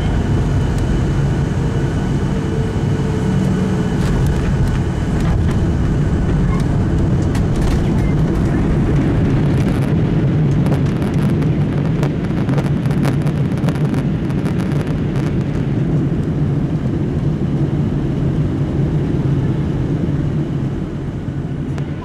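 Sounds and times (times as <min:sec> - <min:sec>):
jet engine reverse thrust roar: 0:00.0 - 0:22.0.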